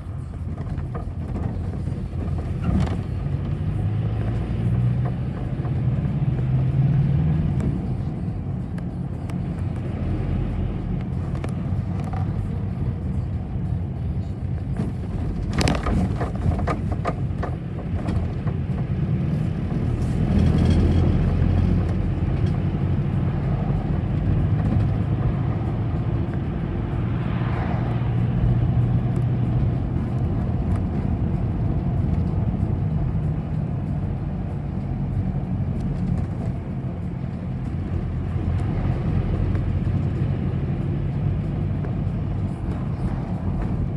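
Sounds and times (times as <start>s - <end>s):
bus engine and road rumble: 0.0s - 43.9s
knocks and rattles: 14.8s - 18.9s.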